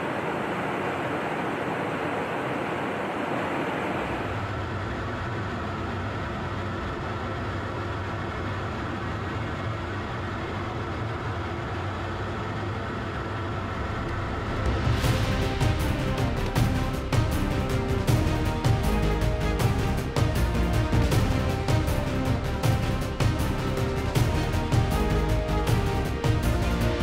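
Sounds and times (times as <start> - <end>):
jet aircraft drone: 0.0 - 27.0
music with sharp beat: 14.4 - 27.0.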